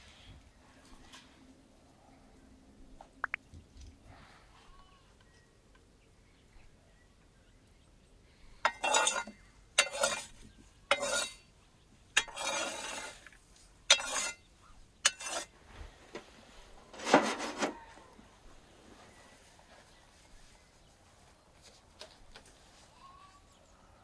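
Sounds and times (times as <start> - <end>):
cookware scraping and rustling: 8.7 - 11.4, 12.2 - 15.5, 16.9 - 17.9.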